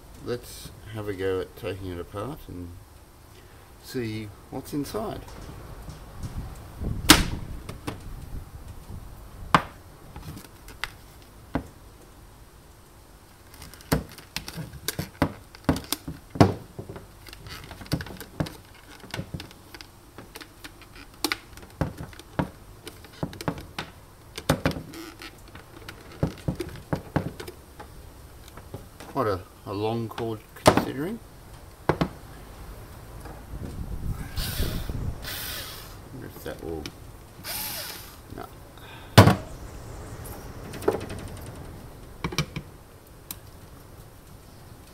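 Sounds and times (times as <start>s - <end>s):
plastic parts knocking and clicking: 13.5s - 27.9s, 31.9s - 32.2s.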